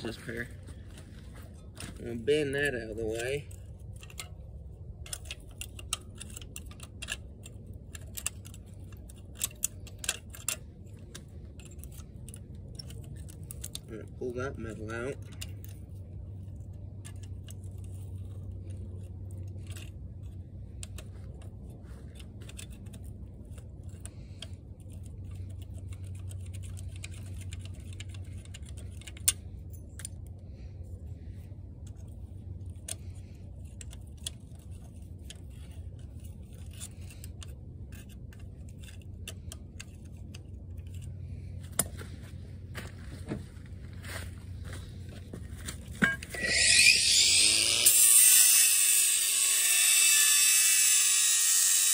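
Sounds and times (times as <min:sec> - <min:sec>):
metal clinks and scrapes: 0:00.0 - 0:43.8, 0:44.5 - 0:51.9
steady low rumble: 0:00.0 - 0:47.9.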